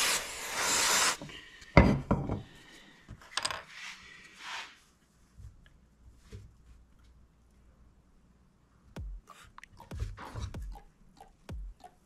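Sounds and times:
aerosol spray can hissing: 0:00.0 - 0:01.2.

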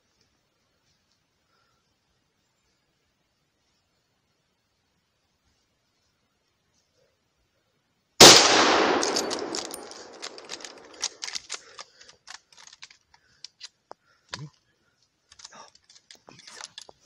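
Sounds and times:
gunshot echoing: 0:08.2 - 0:11.2.

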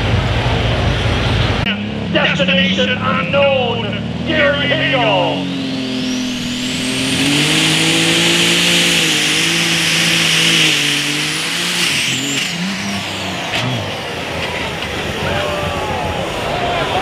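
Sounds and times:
tractor diesel engine at full throttle: 0:00.0 - 0:17.0
high turbo whistle: 0:04.7 - 0:14.1.

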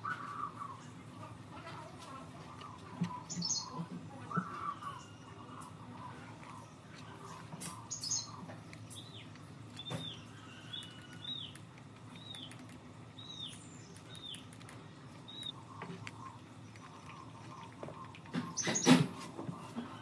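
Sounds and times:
steady low hum: 0:00.0 - 0:20.0
bird chirping: 0:02.7 - 0:19.0.

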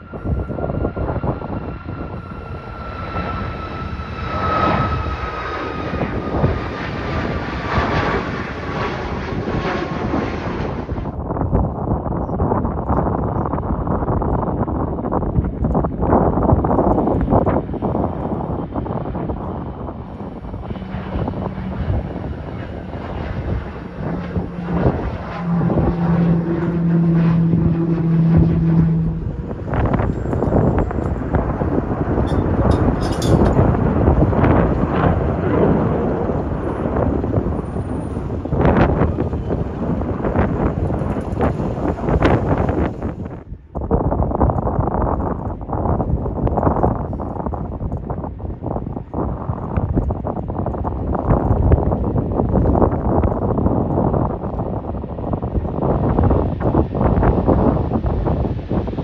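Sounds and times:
jet engines whining: 0:00.0 - 0:11.4, 0:14.5 - 0:43.8
wind buffeting microphone: 0:00.0 - 0:59.0.

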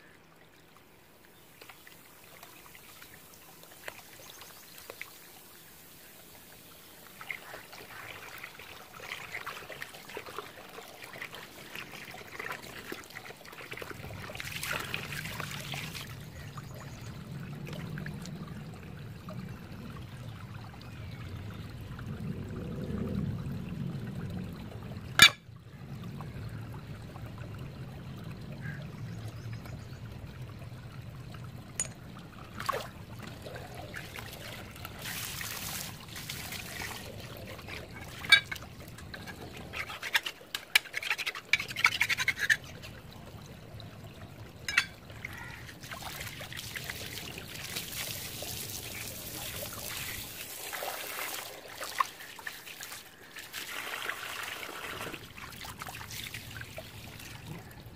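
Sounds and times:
water trickling over trowel: 0:28.6 - 0:57.8.

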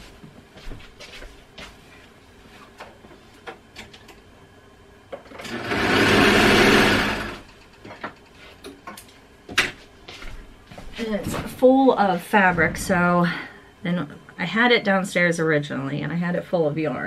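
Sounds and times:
sewing machine running: 0:05.4 - 0:07.5.

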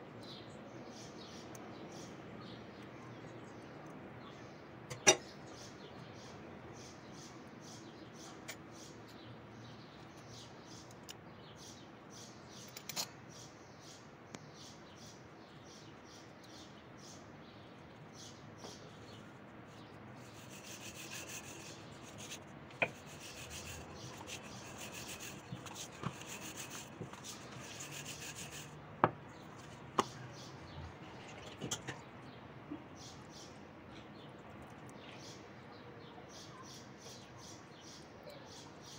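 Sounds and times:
rolling pin rubbing dough: 0:20.2 - 0:28.7.

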